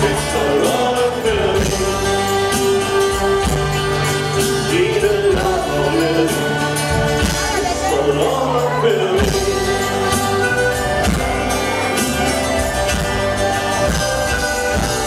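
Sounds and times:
person singing: 0.0 - 12.0
accordion: 0.0 - 15.0
live band playing: 0.0 - 15.0.

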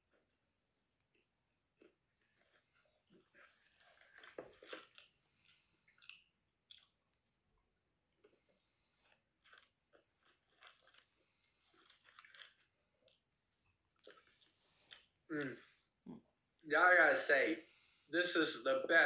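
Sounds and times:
faint chewing of crispy food: 0.1 - 16.7.

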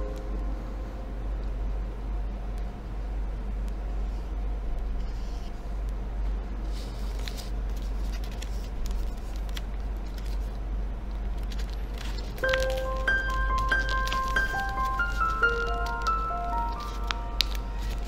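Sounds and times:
steady low hum: 0.0 - 18.0
paper rustling and crinkling: 6.7 - 18.0.

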